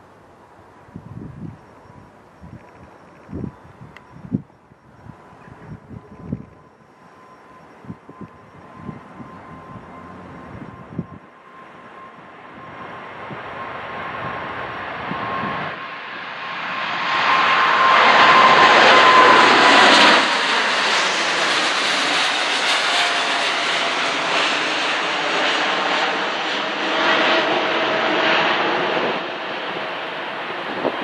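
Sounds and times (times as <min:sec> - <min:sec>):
jet engines at takeoff power: 0:00.0 - 0:31.0
high engine whine falling in pitch: 0:01.4 - 0:15.8, 0:17.2 - 0:26.4.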